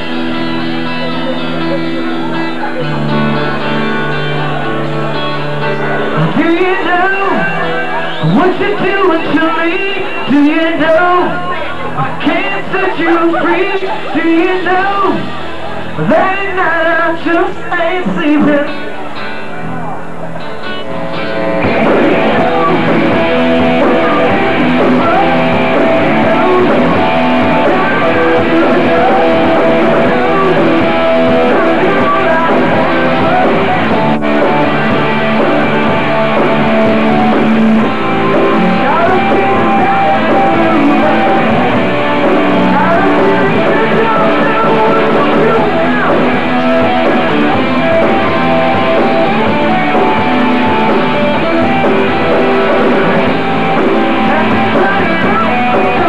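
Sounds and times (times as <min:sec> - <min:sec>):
electric guitars: 0:00.0 - 0:56.0
drum kit: 0:20.6 - 0:56.0.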